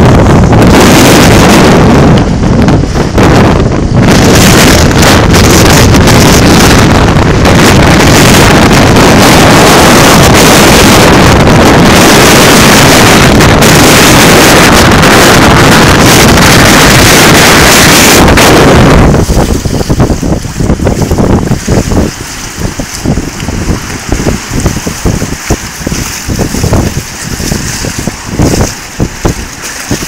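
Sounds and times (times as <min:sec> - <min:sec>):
strong wind buffeting microphone: 0:00.0 - 0:30.0.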